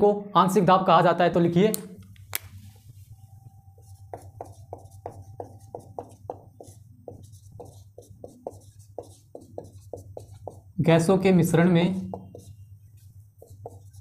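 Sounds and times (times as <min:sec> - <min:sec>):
steady low hum: 0:01.9 - 0:14.0
marker pen writing on whiteboard: 0:03.6 - 0:14.0.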